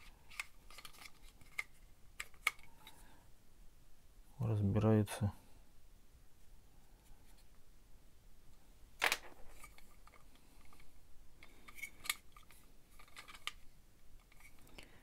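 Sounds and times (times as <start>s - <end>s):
plastic parts clicking and knocking: 0.0s - 3.0s, 9.0s - 14.8s.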